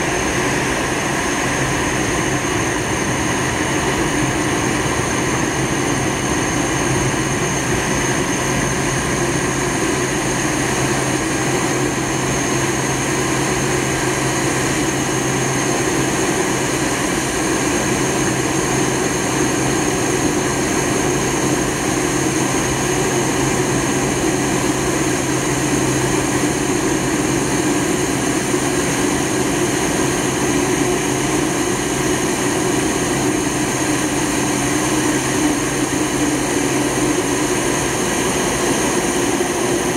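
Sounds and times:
aircraft cabin engine noise: 0:00.0 - 0:39.9.

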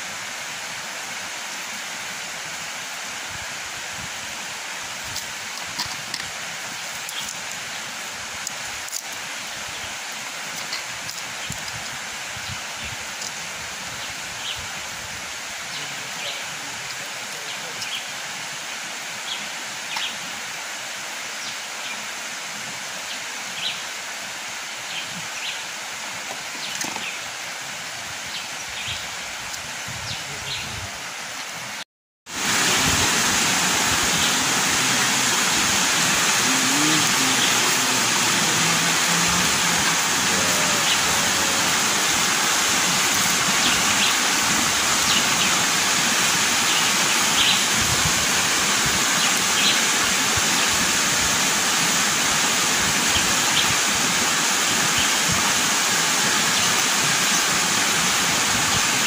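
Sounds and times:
river water rushing: 0:31.1 - 0:59.0.

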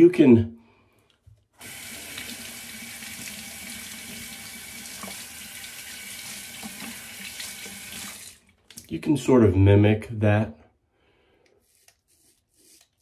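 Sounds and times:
faucet running into sink: 0:01.6 - 0:08.9
razor rinsed under water: 0:01.6 - 0:08.9.

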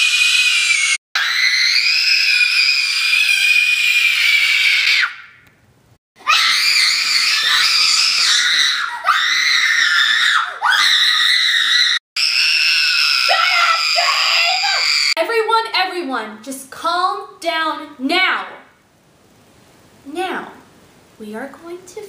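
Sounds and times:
woman screaming in fright: 0:00.0 - 0:05.3, 0:06.3 - 0:15.2.

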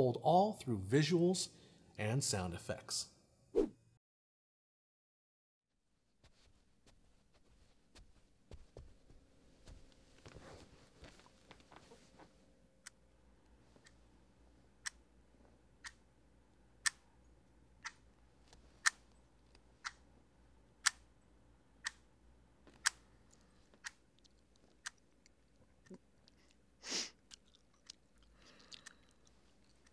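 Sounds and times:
wall clock ticking: 0:14.8 - 0:15.1, 0:15.7 - 0:16.1, 0:16.7 - 0:17.0, 0:17.7 - 0:18.1, 0:19.8 - 0:20.1, 0:20.8 - 0:21.1, 0:21.8 - 0:23.1.

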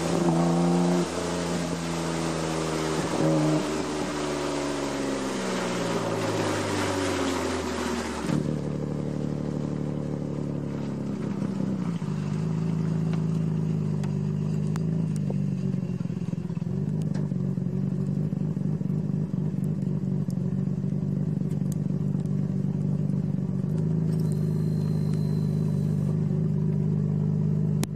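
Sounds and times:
car engine revs falling: 0:00.0 - 0:19.2
car engine idling: 0:03.7 - 0:27.9.

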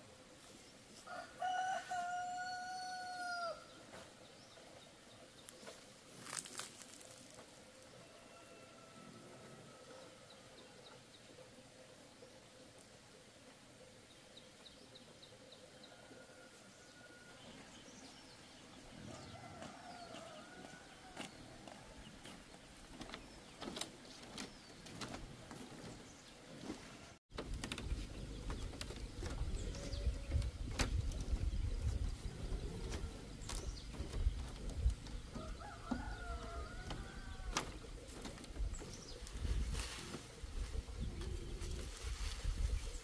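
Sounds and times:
birds chirping: 0:00.0 - 0:43.0
sharp clicks and knocks: 0:27.3 - 0:29.7.

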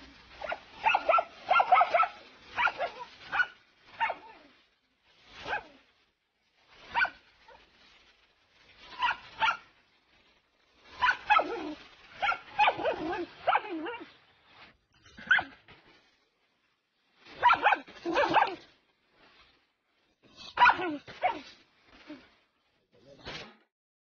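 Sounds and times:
dog barking: 0:00.4 - 0:04.4, 0:05.4 - 0:05.7, 0:06.9 - 0:07.2, 0:09.0 - 0:09.7, 0:11.0 - 0:14.1, 0:15.2 - 0:15.5, 0:17.4 - 0:18.6, 0:20.5 - 0:21.4.

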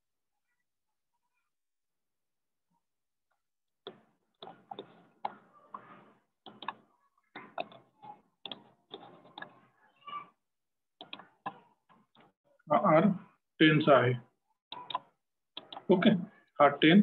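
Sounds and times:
computer mouse clicking: 0:04.4 - 0:05.9, 0:06.5 - 0:06.8, 0:07.4 - 0:09.6, 0:11.0 - 0:11.6, 0:14.7 - 0:15.9.

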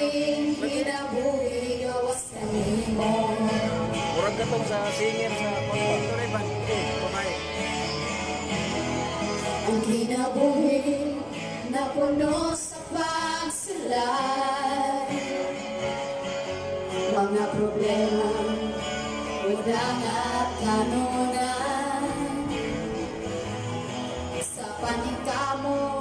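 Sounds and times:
woman singing into a microphone: 0:00.0 - 0:04.0, 0:09.5 - 0:16.1, 0:16.9 - 0:23.2, 0:24.4 - 0:26.0
strummed acoustic guitar: 0:00.0 - 0:26.0.

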